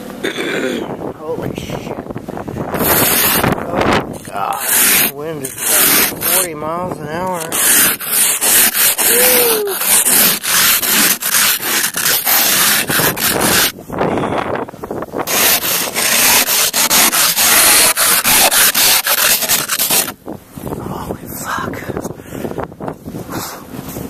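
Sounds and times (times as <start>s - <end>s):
ice scraper scraping windshield: 2.7s - 13.8s, 15.2s - 20.2s.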